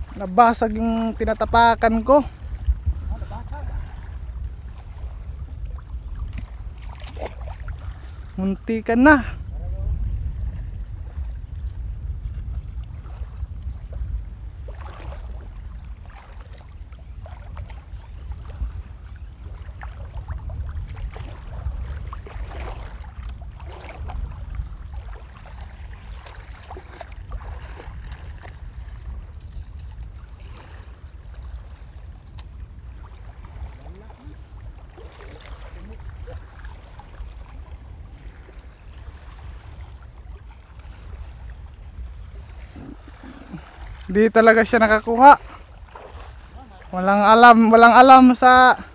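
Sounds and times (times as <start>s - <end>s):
feet wading through water: 0.0s - 9.2s, 10.2s - 48.9s
wind buffeting microphone: 0.0s - 48.9s.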